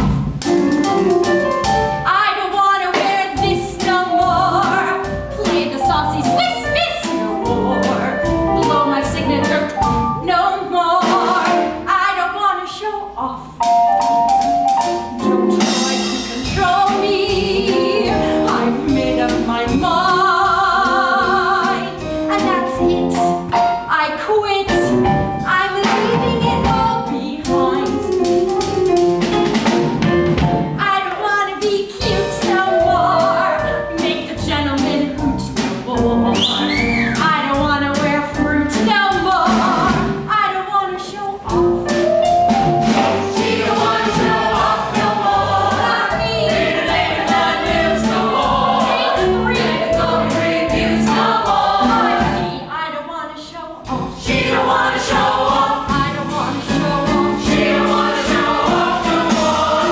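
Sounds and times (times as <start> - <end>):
small band with drum kit: 0.0 - 2.1, 2.9 - 11.9, 13.5 - 23.9, 24.7 - 31.0, 31.6 - 40.3, 41.4 - 52.6, 53.8 - 59.9
woman singing lead: 2.1 - 13.6, 15.1 - 24.9
ensemble voices singing: 15.1 - 22.3, 43.0 - 52.7, 53.8 - 59.9.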